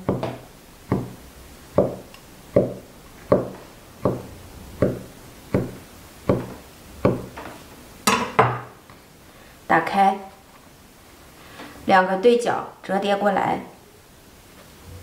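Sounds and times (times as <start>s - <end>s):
cleaver chopping onto wooden board: 0.1s - 1.2s, 2.6s - 5.0s.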